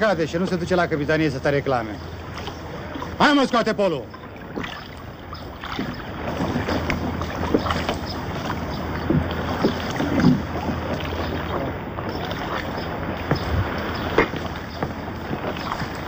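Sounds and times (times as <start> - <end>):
wind and water wash: 0.0 - 16.0
rowboat timbers knocking and creaking: 4.0 - 16.0.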